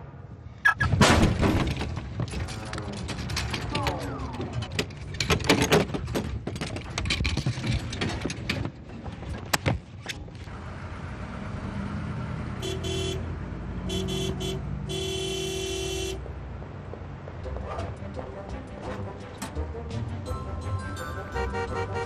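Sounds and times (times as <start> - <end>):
electronic car horn beeps: 0.6 - 0.9, 12.6 - 13.2, 13.9 - 16.2, 21.4 - 22.0
clattering and banging knocks: 0.7 - 10.3.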